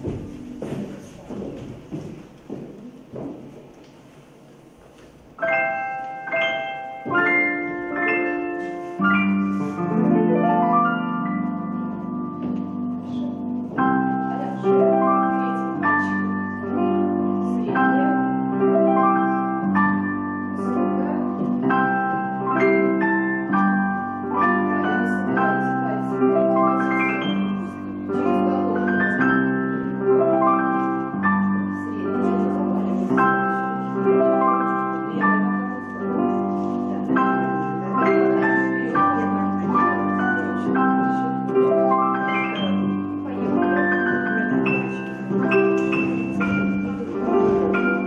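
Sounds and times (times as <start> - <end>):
slow gentle instrumental music: 0.0 - 48.0.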